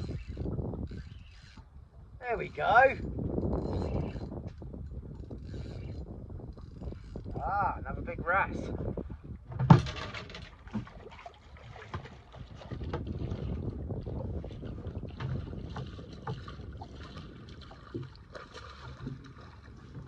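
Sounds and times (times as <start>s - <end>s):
wind buffeting microphone: 0.0s - 20.0s
water slapping boat hull: 8.6s - 20.0s.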